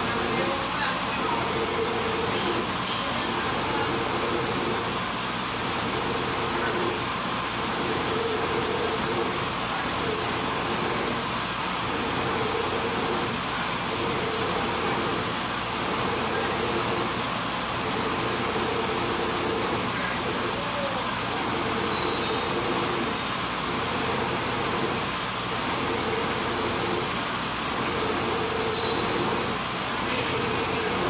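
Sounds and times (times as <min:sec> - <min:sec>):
milling machine cutting metal: 0:00.0 - 0:31.0.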